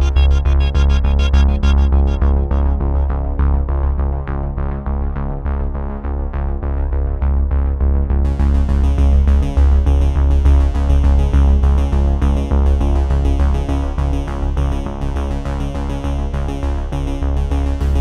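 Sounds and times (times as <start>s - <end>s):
electronic music with synthesizer: 0.0s - 4.1s.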